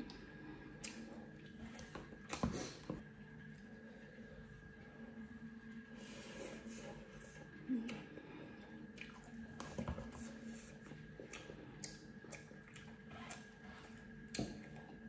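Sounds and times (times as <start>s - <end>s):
slurping and chewing noodles: 8.9s - 15.0s.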